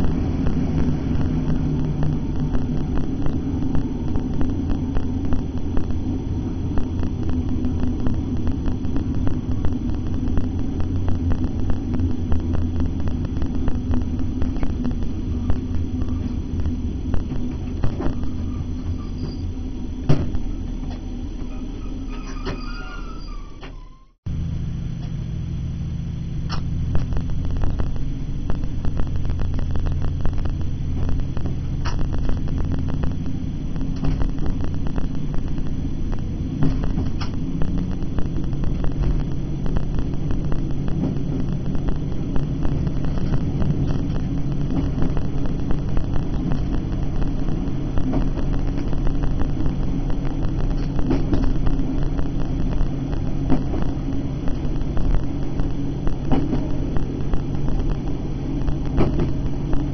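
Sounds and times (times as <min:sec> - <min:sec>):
diesel engine rumble: 0:00.0 - 0:59.9
wheels clicking on track: 0:28.7 - 0:59.9.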